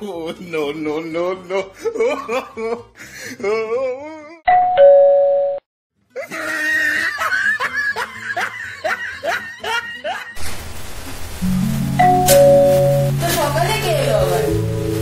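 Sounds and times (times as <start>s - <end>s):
ding-dong chime: 4.5s - 5.6s, 11.8s - 13.4s.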